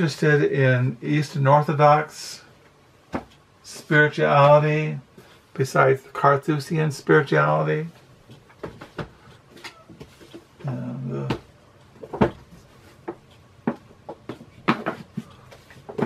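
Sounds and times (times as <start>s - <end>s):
books knocking on desk: 3.1s - 3.4s, 8.6s - 9.2s, 11.3s - 16.0s
man humming mm: 10.6s - 11.4s.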